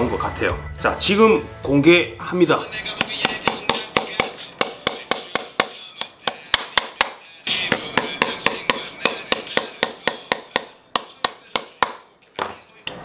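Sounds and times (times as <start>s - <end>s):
hammer tapping tacks: 3.0s - 12.0s.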